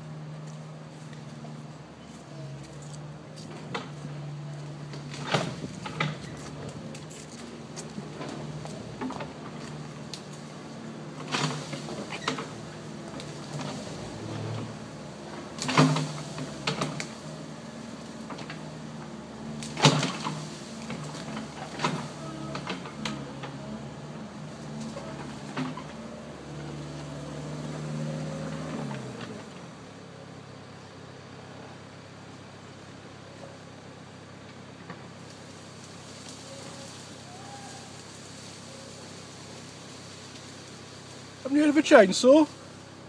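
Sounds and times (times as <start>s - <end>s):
diesel engine running: 0.0s - 43.0s
branches cracking: 4.5s - 29.6s.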